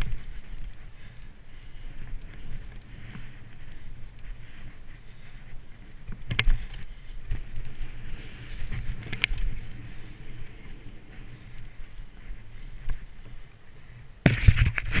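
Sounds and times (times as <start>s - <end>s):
bike rattling and clicking: 0.0s - 15.0s
bike tyres rumbling on dirt: 0.0s - 15.0s
wind on camera: 0.0s - 15.0s
rubbing and knocking on camera: 14.3s - 15.0s.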